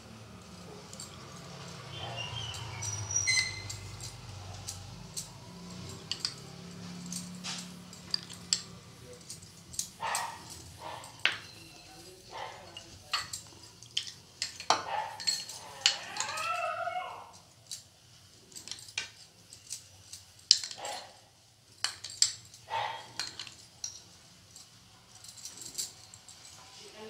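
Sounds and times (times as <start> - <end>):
dog whining: 1.9 - 4.3, 14.9 - 17.5
metal spoon scraping dishes: 2.0 - 16.5.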